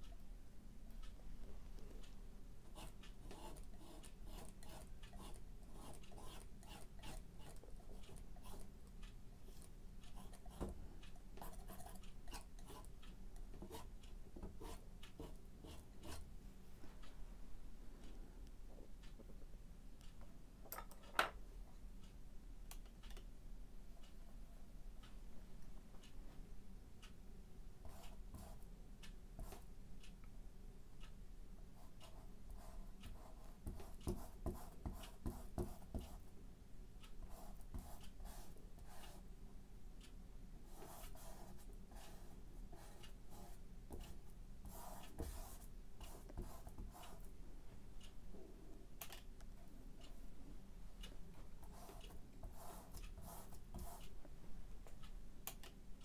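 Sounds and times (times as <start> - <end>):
painting tools tapping and clicking: 2.7 - 8.7, 33.1 - 36.2.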